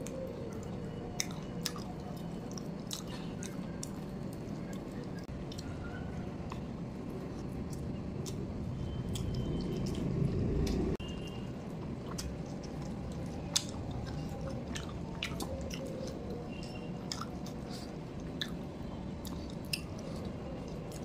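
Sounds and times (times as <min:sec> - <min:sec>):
close chewing with wet clicks: 0:00.0 - 0:21.0
low rumble: 0:06.8 - 0:11.8.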